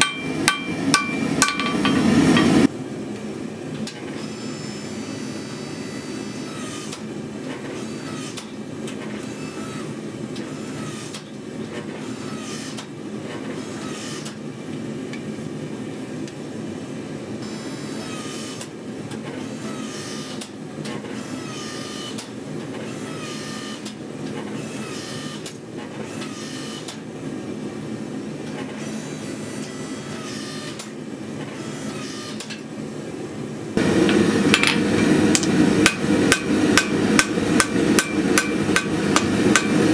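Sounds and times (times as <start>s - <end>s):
forging press running: 0.0s - 2.7s, 33.8s - 39.9s.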